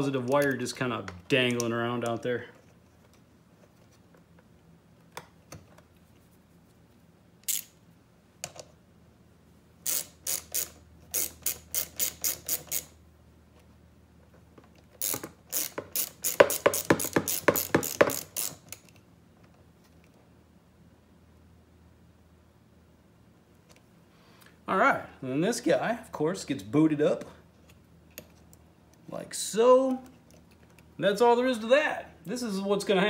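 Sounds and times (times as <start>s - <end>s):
socket ratchet clicking: 7.4s - 7.8s, 9.8s - 13.0s, 15.0s - 19.0s.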